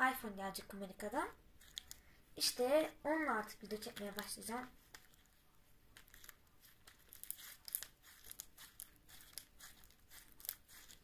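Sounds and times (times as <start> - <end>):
slime sticky crackles and pops: 6.0 - 11.0.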